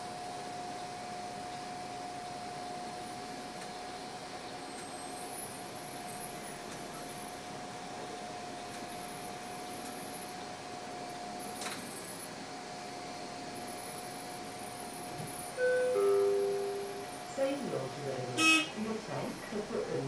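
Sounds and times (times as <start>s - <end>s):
constant whine: 0.0s - 20.0s
bus cabin hum: 0.1s - 20.0s
announcement chime: 15.6s - 19.0s.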